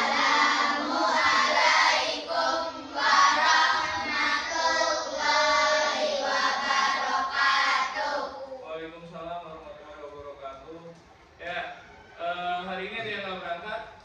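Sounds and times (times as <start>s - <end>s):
children singing in unison: 0.0s - 8.6s.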